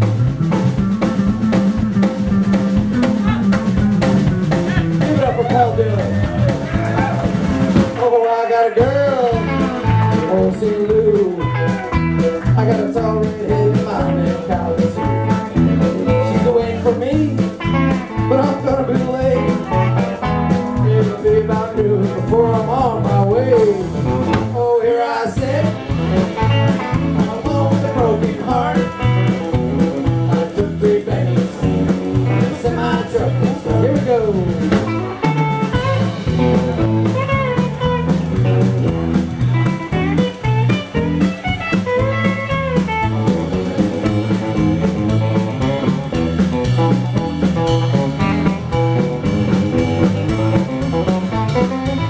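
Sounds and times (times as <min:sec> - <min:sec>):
repeating bass line: 0:00.0 - 0:08.0, 0:08.8 - 0:24.7, 0:25.4 - 0:52.0
steady beat: 0:00.0 - 0:08.1, 0:08.8 - 0:24.6, 0:25.4 - 0:52.0
electric guitar: 0:00.0 - 0:52.0
live country-rock band: 0:00.0 - 0:52.0
fiddle: 0:31.1 - 0:52.0.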